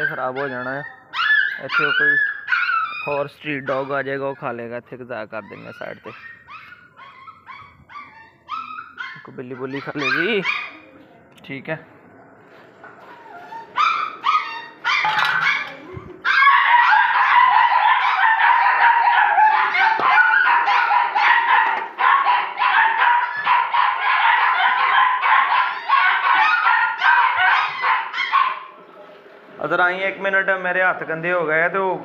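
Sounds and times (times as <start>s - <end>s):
puppies barking and yipping: 0.0s - 4.6s, 5.3s - 10.9s, 12.8s - 28.7s.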